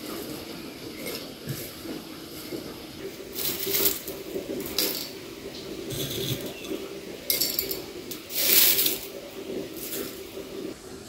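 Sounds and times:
dry herbs rustling and crackling: 3.2 - 5.1.

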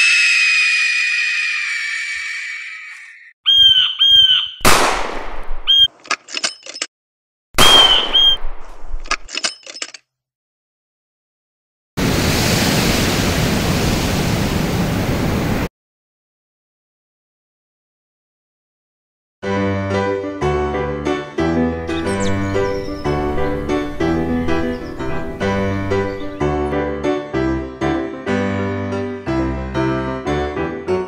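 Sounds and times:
short chirping tones: 3.1 - 4.6, 5.7 - 6.9, 7.6 - 8.5
sharp bangs: 4.6 - 6.0, 7.6 - 9.3
scattered clicks: 5.8 - 6.9, 8.2 - 10.0.

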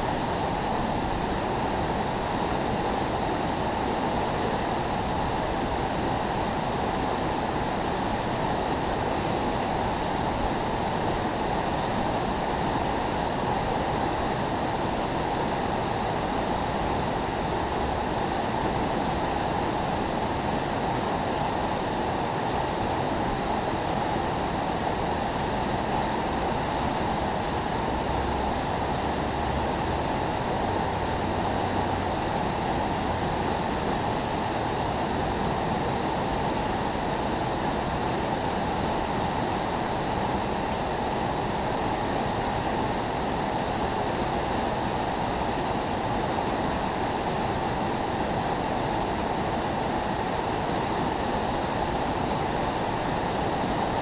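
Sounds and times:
water roaring through spillway: 0.0 - 54.0.

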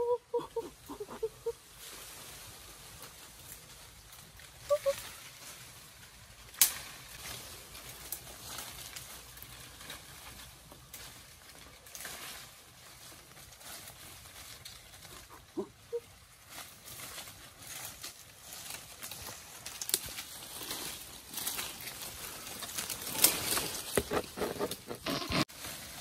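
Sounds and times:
leaves and branches rustling: 0.0 - 26.0
branch cracking: 6.4 - 12.6, 16.6 - 25.5.

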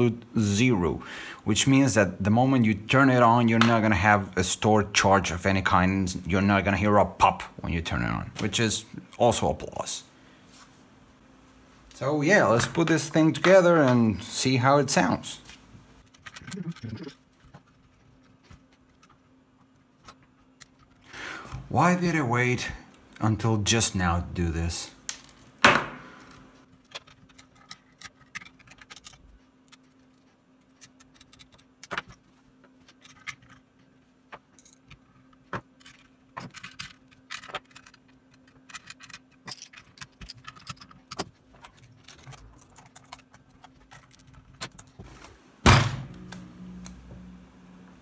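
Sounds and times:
faint steady hum: 0.0 - 48.0
clicks and rattles of screws: 16.0 - 19.2, 26.8 - 32.2, 32.8 - 33.7, 34.4 - 45.0
loud thump: 45.6 - 46.4.

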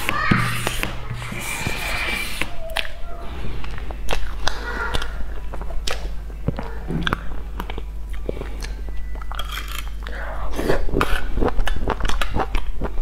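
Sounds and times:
chewing and biting: 3.6 - 13.0.

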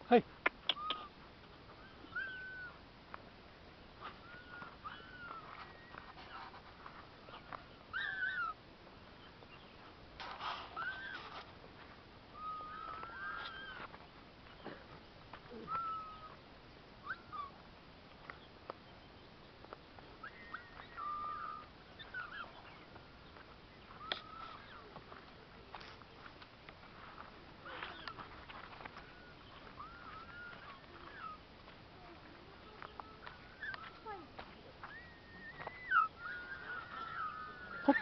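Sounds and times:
high-pitched chirping calls: 28.8 - 31.4, 32.6 - 38.0.

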